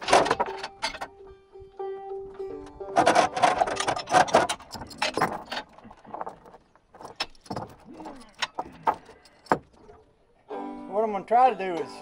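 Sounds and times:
steel chain rattling and clinking: 0.0s - 1.2s, 3.0s - 10.1s.

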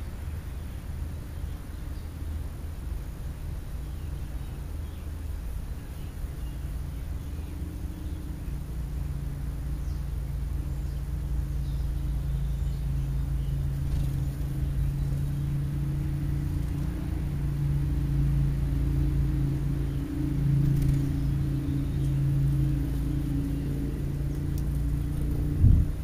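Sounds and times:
low motor hum: 0.0s - 26.0s
deep rumble: 5.8s - 26.0s.

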